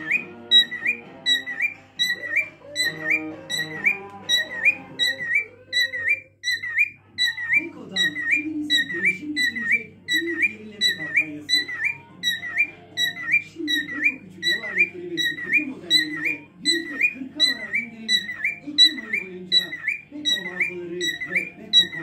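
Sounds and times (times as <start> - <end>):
cockatiel whistled chirps: 0.0 - 22.0.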